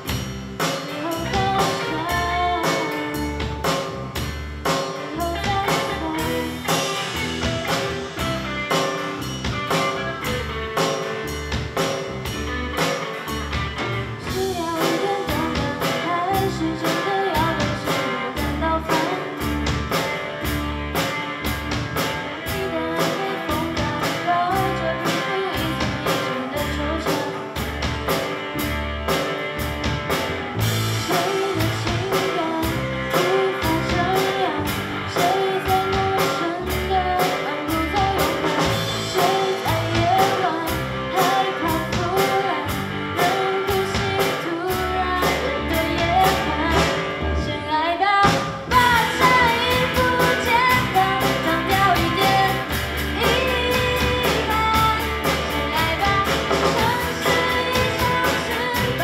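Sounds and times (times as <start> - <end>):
drum kit beat: 0.0 - 47.5, 48.2 - 59.0
bass guitar: 0.0 - 59.0
electric guitar: 0.0 - 59.0
person singing: 0.9 - 3.6, 5.0 - 7.8, 14.2 - 19.6, 22.4 - 27.6, 31.0 - 59.0.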